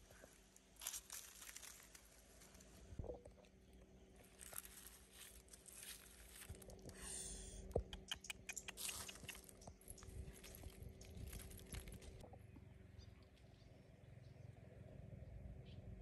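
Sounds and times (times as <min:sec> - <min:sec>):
dry leaves crackling and rustling: 0:00.3 - 0:03.0, 0:04.1 - 0:06.9, 0:08.8 - 0:12.2
sharp clicks: 0:07.8 - 0:09.7.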